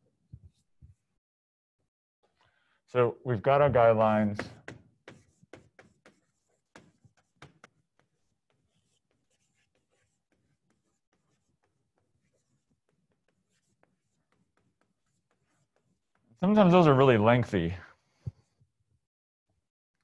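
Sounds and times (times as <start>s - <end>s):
chalk writing on a chalkboard: 4.4s - 16.4s.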